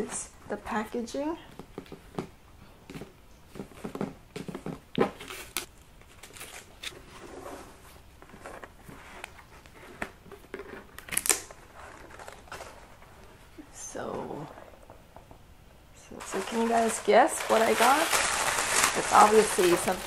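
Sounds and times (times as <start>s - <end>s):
ribbon and box rustling: 16.2s - 20.0s.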